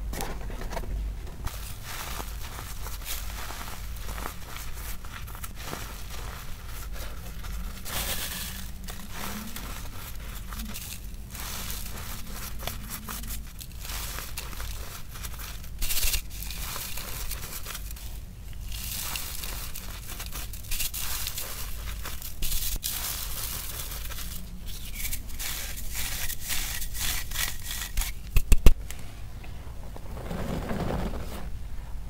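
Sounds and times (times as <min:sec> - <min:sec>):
chalk crunching in a sieve: 0:01.5 - 0:28.5.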